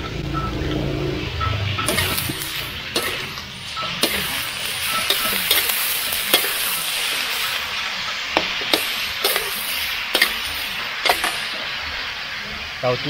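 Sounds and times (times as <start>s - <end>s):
cabbage sizzling in a wok: 1.2s - 13.0s
metal spatula scraping a pan: 1.8s - 7.7s, 8.7s - 11.8s.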